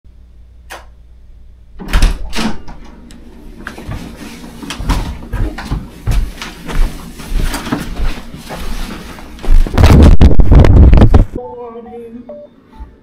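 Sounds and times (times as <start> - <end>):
door thudding open: 1.8 - 2.8
heavy footsteps on tiles: 3.6 - 11.4.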